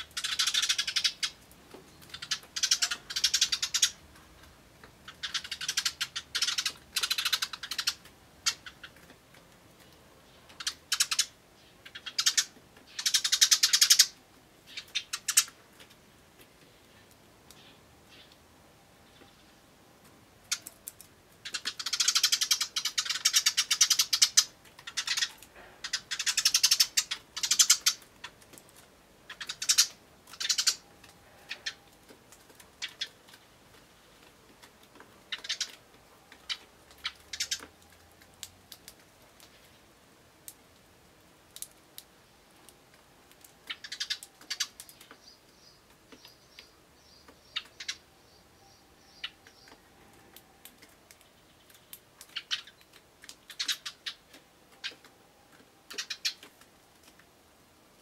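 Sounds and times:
sparrows chirping: 0.0s - 9.1s, 9.8s - 15.6s, 16.7s - 18.4s, 20.4s - 28.4s, 29.3s - 34.3s, 34.9s - 37.8s, 43.6s - 55.1s, 55.8s - 56.5s.

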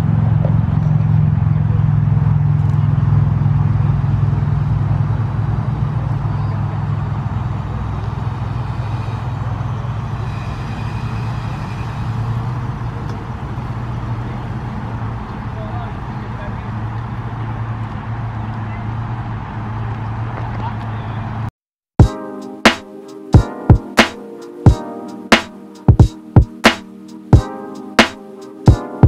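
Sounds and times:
car engine rumbling: 0.0s - 21.5s.

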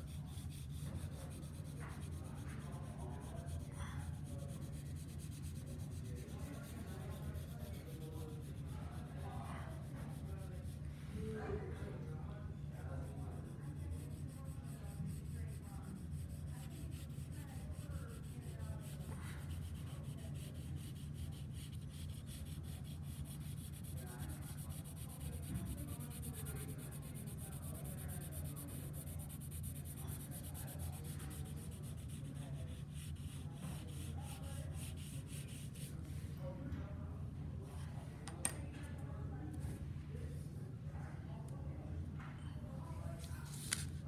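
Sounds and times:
pencil shading on paper: 0.0s - 10.8s, 13.0s - 35.9s.

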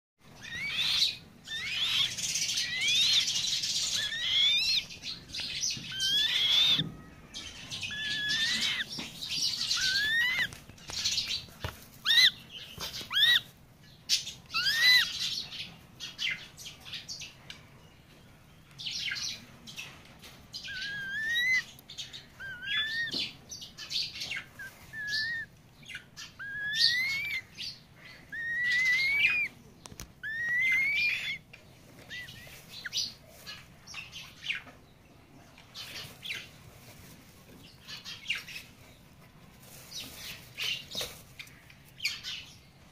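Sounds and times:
bird chick calling: 0.3s - 13.5s, 14.1s - 15.5s, 20.6s - 34.7s.

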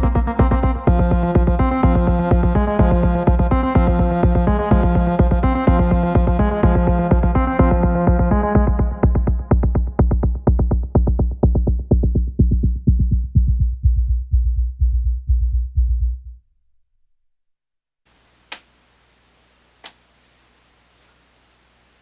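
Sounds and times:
electronic beat with heavy bass: 0.0s - 16.2s.

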